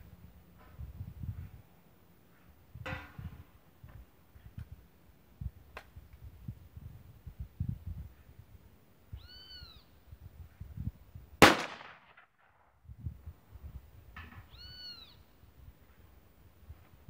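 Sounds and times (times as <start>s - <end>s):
shotgun blast: 11.4s - 12.6s.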